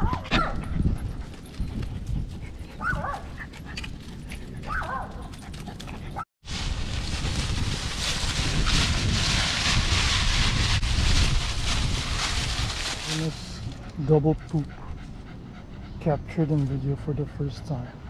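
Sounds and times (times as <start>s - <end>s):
rustling of dry leaves: 6.4s - 14.7s.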